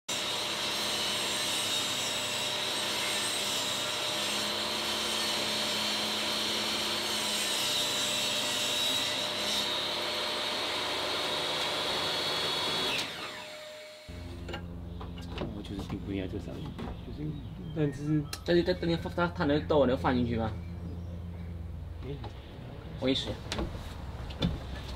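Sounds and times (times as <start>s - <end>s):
saw cutting board: 0.1s - 14.4s
table saw motor whine: 0.1s - 15.3s
saw blade spinning down: 11.5s - 14.5s.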